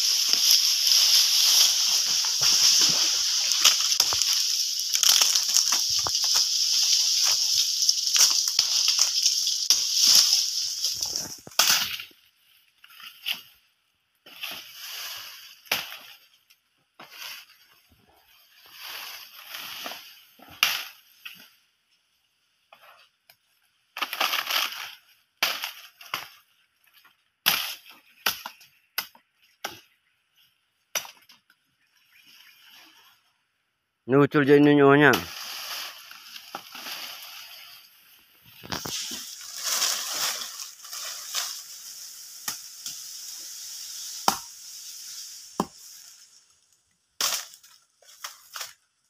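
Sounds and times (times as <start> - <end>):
dry palm fronds crackling: 0.0 - 13.5, 17.0 - 21.5, 24.0 - 28.8, 34.5 - 49.0
palm fibre cracking: 0.1 - 12.2, 38.4 - 48.9.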